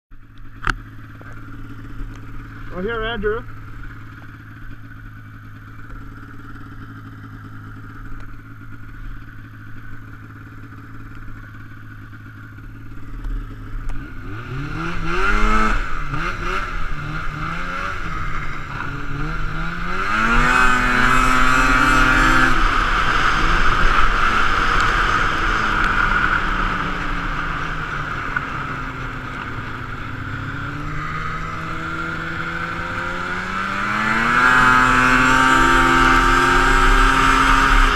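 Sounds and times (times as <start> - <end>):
snowmobile engine idling and revving: 0.1 - 37.9.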